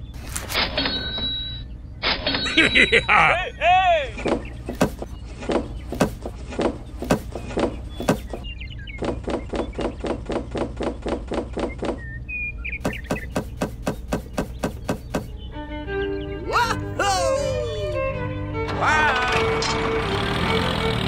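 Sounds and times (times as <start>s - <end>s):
toys tapping into wooden crate: 4.7s - 5.1s, 7.0s - 7.4s, 8.0s - 8.4s, 12.8s - 15.3s.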